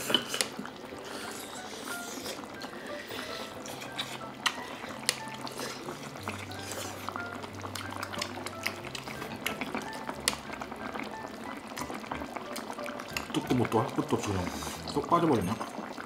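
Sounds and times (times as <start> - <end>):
food simmering with bubbling hiss: 0.0 - 16.0
soft background music: 0.0 - 16.0
chopsticks clicking against pot: 13.1 - 13.4.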